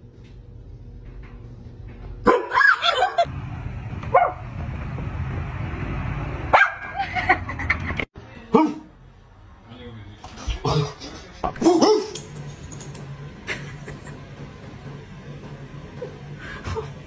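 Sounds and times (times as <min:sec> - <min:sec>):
dog barking: 0:02.2 - 0:02.8, 0:06.5 - 0:07.0, 0:08.5 - 0:08.9.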